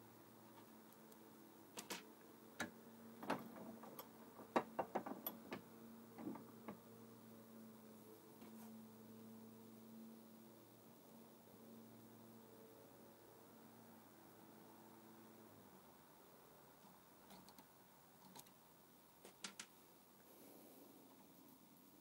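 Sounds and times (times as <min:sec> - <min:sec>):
faint hum: 0:05.2 - 0:22.0.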